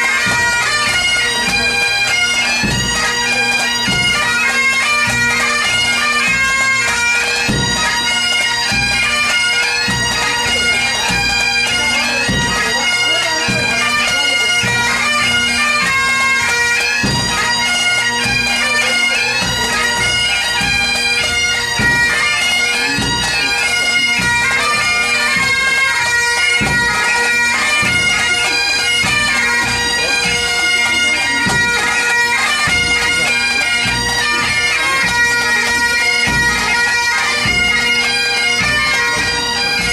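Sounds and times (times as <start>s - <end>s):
drum beats: 0.0s - 38.0s
bagpipes playing a tune: 0.0s - 39.9s.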